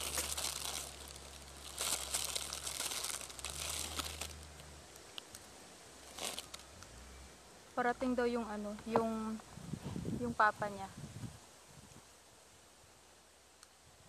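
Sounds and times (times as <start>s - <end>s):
plastic packaging crinkling: 0.0s - 6.7s.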